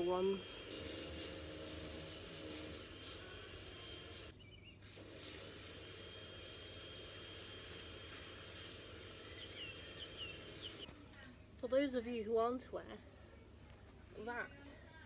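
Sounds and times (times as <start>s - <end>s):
bird chirping: 4.3s - 4.8s, 9.2s - 11.1s.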